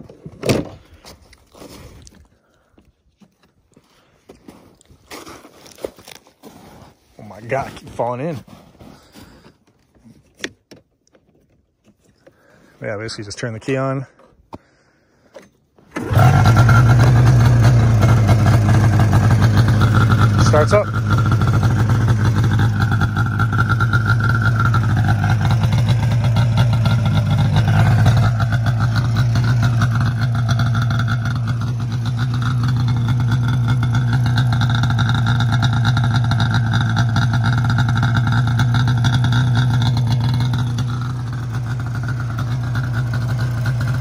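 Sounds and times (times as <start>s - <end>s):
snowmobile engine running: 15.9s - 44.0s.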